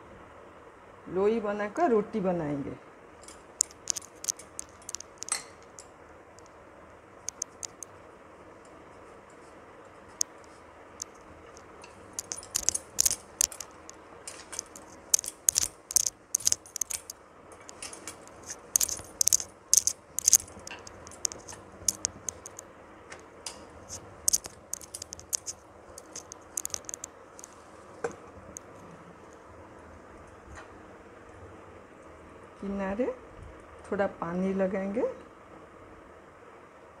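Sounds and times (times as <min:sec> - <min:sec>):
bangles clinking: 0:03.2 - 0:05.9, 0:07.3 - 0:07.9, 0:11.0 - 0:22.6, 0:23.9 - 0:27.5.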